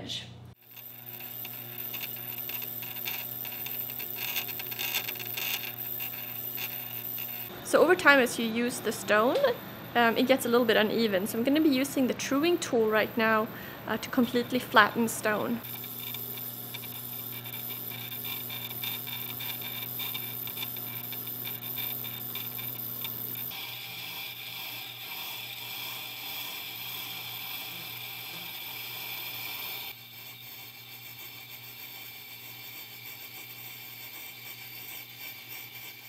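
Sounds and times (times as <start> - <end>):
tool scraping grinding stone: 0.6 - 7.5, 14.1 - 36.0
grinder motor hum: 0.6 - 36.0.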